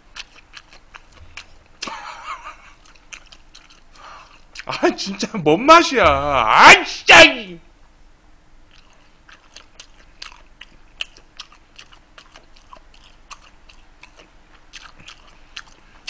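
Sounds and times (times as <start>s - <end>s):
person chewing food: 0.0s - 4.8s, 8.7s - 16.0s.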